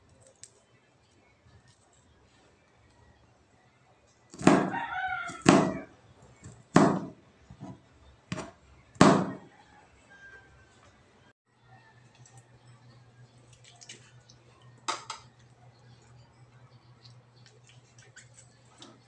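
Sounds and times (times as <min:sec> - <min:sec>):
rooster crowing: 0:04.6 - 0:05.9, 0:09.3 - 0:10.9
knife chopping on cutting board: 0:06.8 - 0:07.2.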